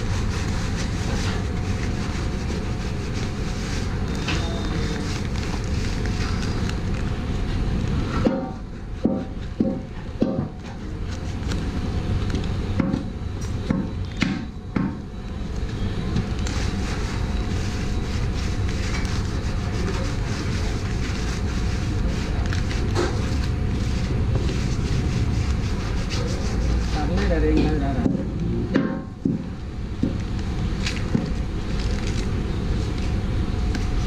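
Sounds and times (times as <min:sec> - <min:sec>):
steady rushing background noise: 0:00.0 - 0:34.0
plastic packets knocking and rustling: 0:29.2 - 0:32.4.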